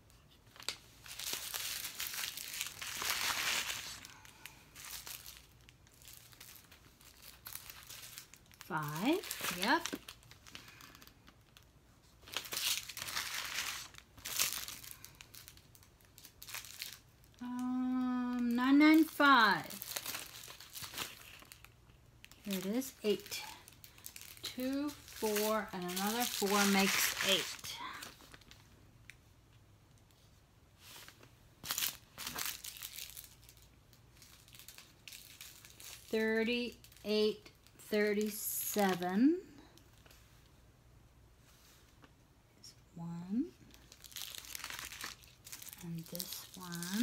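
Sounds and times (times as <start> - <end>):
plastic bags crinkling: 0.5 - 28.8, 30.8 - 37.7, 43.6 - 47.0
woman speaking: 8.7 - 10.0, 17.4 - 19.9, 22.4 - 23.6, 24.4 - 28.1, 36.1 - 39.6, 42.6 - 43.6, 45.8 - 47.0.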